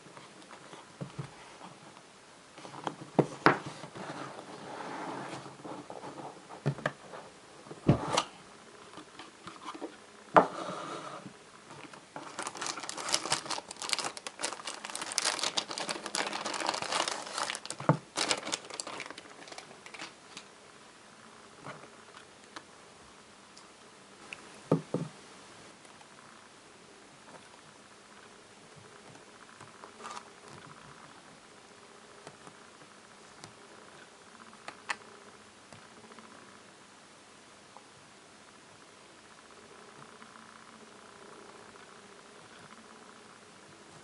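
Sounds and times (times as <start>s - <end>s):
plastic bag crinkling: 11.8s - 20.5s.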